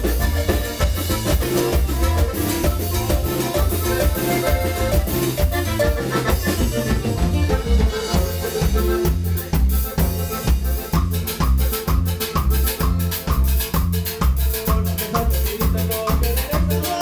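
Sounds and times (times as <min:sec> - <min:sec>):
latin dance band music: 0:00.0 - 0:17.0.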